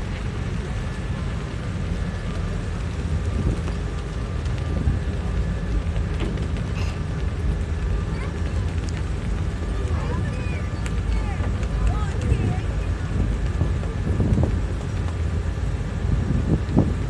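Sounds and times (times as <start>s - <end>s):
ferry engine rumble: 0.0s - 17.0s
wind buffeting microphone: 0.0s - 17.0s.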